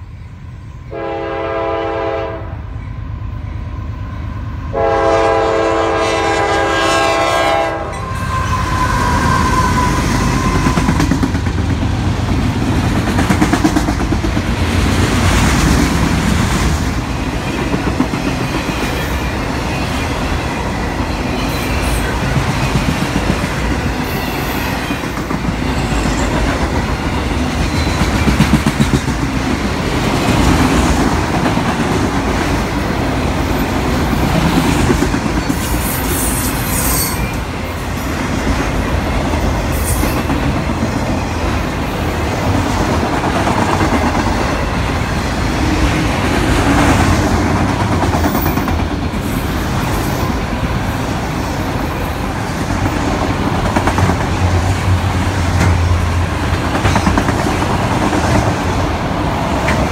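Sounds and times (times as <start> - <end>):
train wheels rumbling on rail: 0.0 - 59.9
high wheel squeals: 7.9 - 11.0, 24.0 - 25.1, 35.4 - 37.8.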